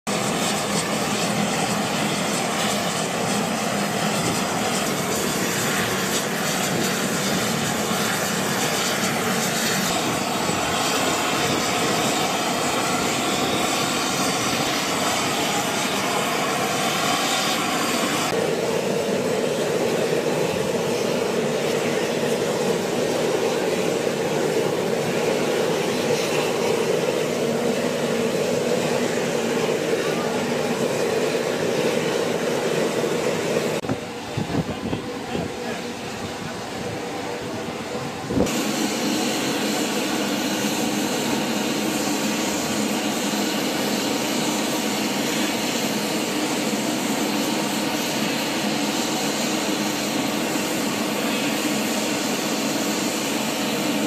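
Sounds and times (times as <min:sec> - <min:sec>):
aircraft engines and rotors running: 0:00.0 - 0:54.0.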